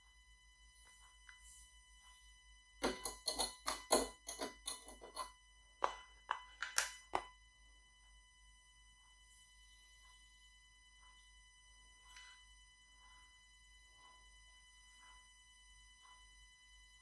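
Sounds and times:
sugar rattling into steel bowl: 2.8 - 5.3.

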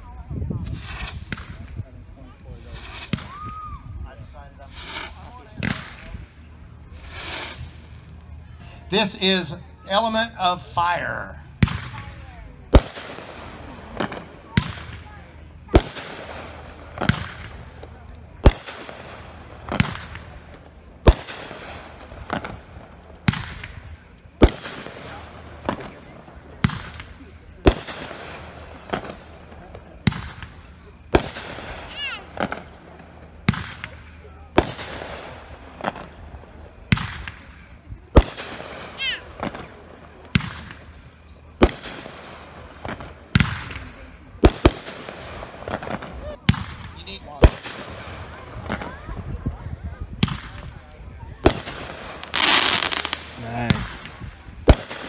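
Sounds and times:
faint firework hiss: 0.0 - 55.0
fireworks bangs with echo: 0.0 - 55.0
falling firework whistle: 0.5 - 10.2, 41.6 - 55.0.

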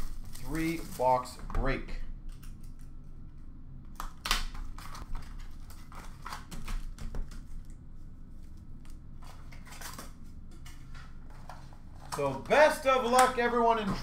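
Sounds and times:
cardboard rustling: 0.0 - 1.5.

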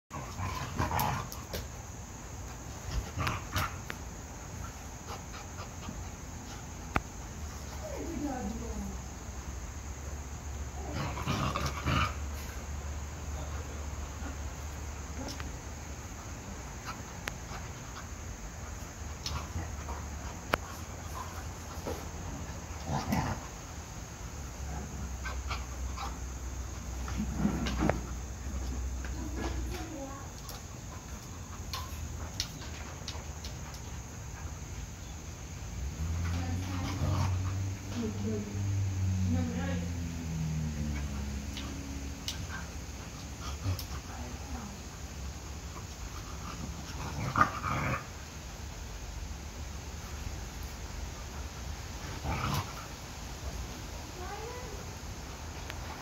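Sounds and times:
dogs play growling: 0.1 - 56.0
dog grumbling: 10.8 - 12.4.

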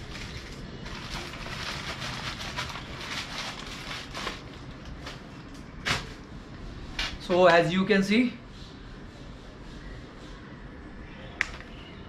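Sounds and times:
plastic bag rustling and crinkling: 0.0 - 5.3.

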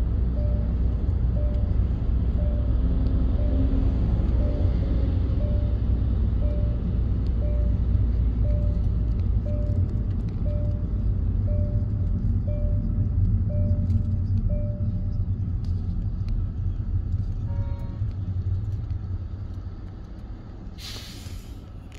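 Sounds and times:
road and engine rumble: 0.0 - 21.9
short electronic beeps: 0.3 - 0.8, 2.4 - 15.1.

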